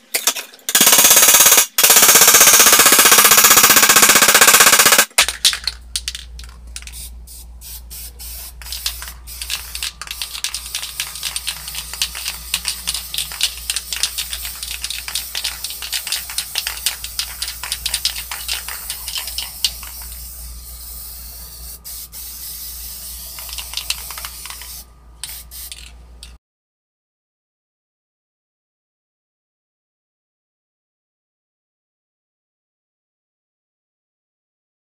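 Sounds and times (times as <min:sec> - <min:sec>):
spray paint can hissing: 0:05.7 - 0:25.9.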